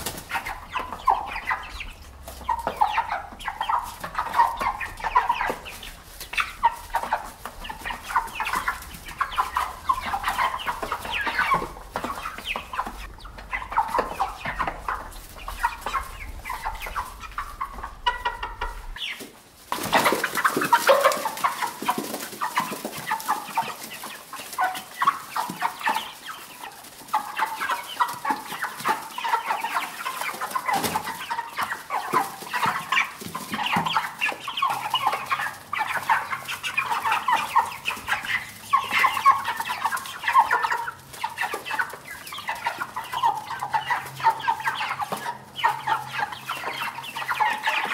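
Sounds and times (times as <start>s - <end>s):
chickens clucking: 0.0s - 47.9s.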